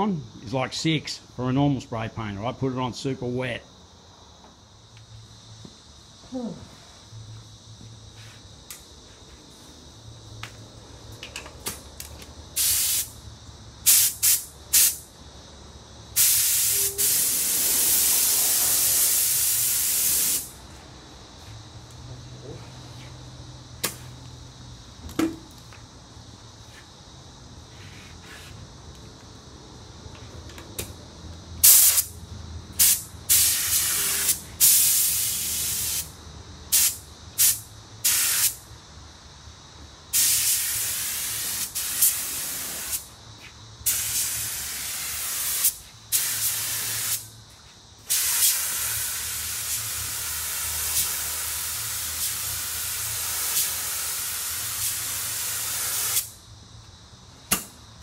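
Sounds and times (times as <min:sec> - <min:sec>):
paint spray gun hissing: 0:12.6 - 0:13.2, 0:13.8 - 0:15.0, 0:16.2 - 0:20.5, 0:31.6 - 0:32.1, 0:32.8 - 0:36.1, 0:36.7 - 0:38.6, 0:40.1 - 0:43.1, 0:43.9 - 0:47.3, 0:48.1 - 0:56.4.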